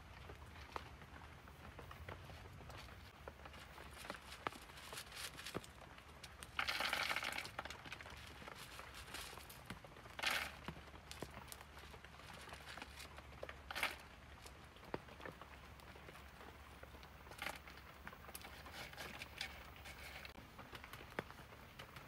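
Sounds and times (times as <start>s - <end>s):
small stones clicking and scraping: 2.8s - 16.3s, 17.0s - 20.4s.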